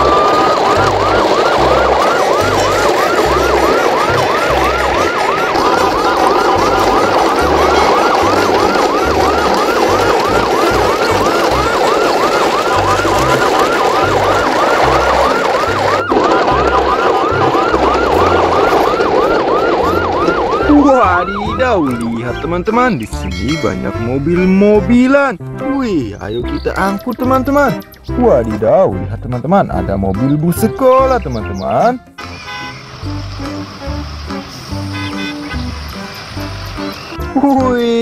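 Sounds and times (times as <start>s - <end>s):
yelp siren: 0.0s - 23.8s
low pulsing: 0.0s - 24.9s.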